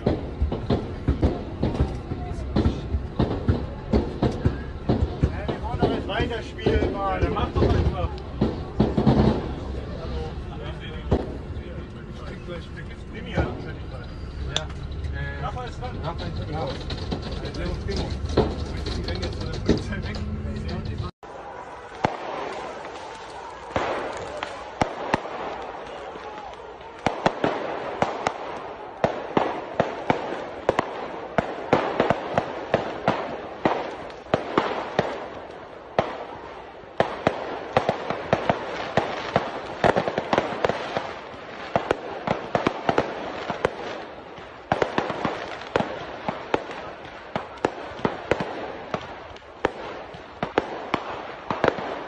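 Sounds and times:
noisy background: 0.0s - 22.2s
fireworks and firecrackers banging: 0.0s - 52.0s.

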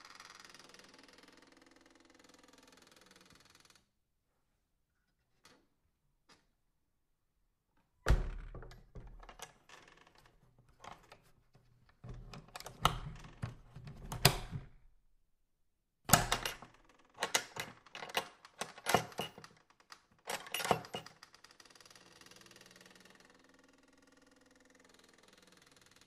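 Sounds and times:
door creaking: 8.0s - 14.9s, 16.1s - 19.5s, 20.2s - 21.2s.

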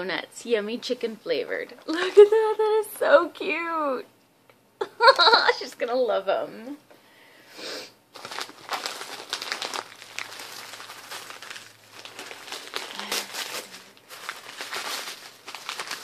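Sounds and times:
wrapping paper crinkling: 8.1s - 16.0s.

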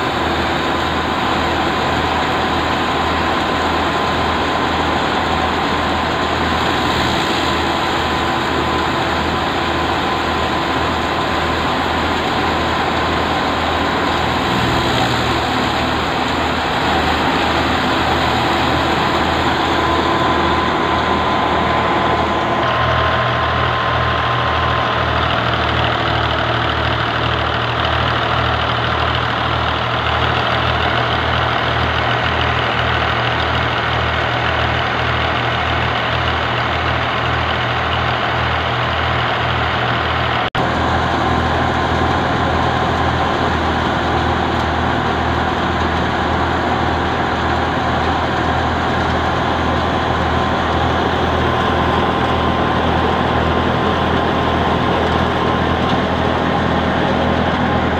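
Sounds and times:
tractor engine driving threshing machine: 0.0s - 57.9s.

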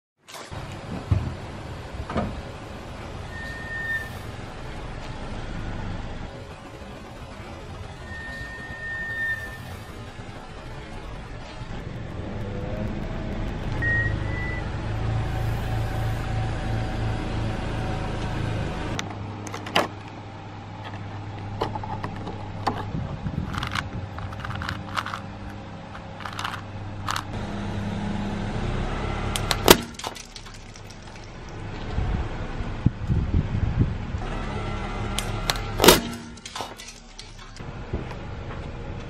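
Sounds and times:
car engine running: 4.2s - 39.0s
plastic box clicks and crinkles: 21.7s - 25.3s, 26.0s - 27.3s
tyre crushing toy with crack: 29.4s - 31.2s, 35.2s - 37.6s.

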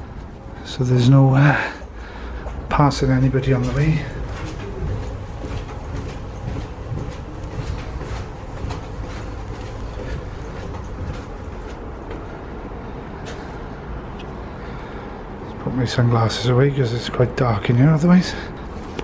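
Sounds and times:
footsteps on concrete stairs: 0.0s - 14.4s.

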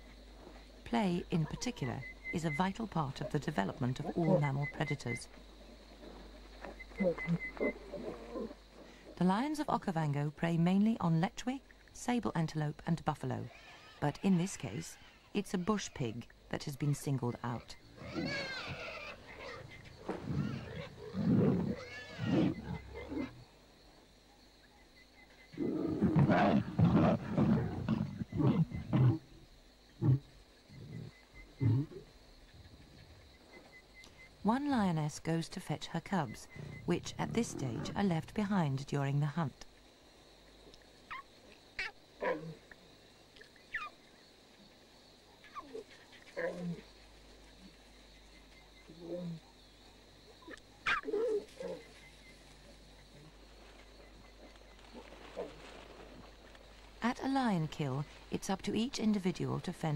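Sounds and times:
lions growling: 5.6s - 9.2s, 17.9s - 23.5s, 25.5s - 29.4s
lions calling softly: 6.0s - 9.2s, 17.9s - 23.4s, 45.4s - 46.9s, 50.4s - 53.4s
pig squealing: 18.0s - 23.3s, 50.5s - 51.8s.

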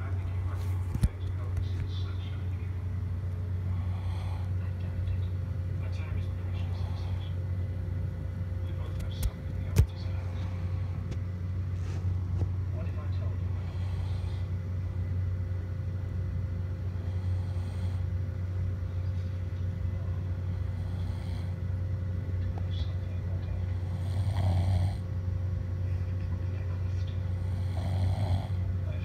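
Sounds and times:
steady low hum: 0.0s - 29.0s
person snoring: 3.7s - 4.6s, 13.5s - 14.6s, 17.0s - 18.1s, 20.4s - 21.6s, 23.7s - 25.0s, 27.3s - 28.7s.

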